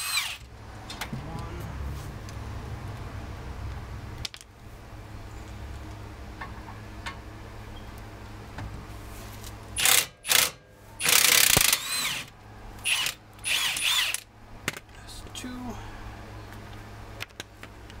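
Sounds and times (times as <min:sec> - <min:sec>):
cordless power tool whine: 0:00.0 - 0:00.5, 0:09.8 - 0:14.2.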